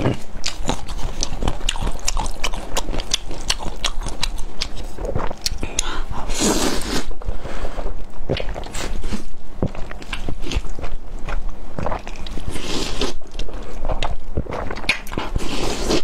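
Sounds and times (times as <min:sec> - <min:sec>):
wet chewing: 0:00.0 - 0:06.3, 0:08.3 - 0:16.0
slurping noodles: 0:06.2 - 0:09.3, 0:11.8 - 0:16.0.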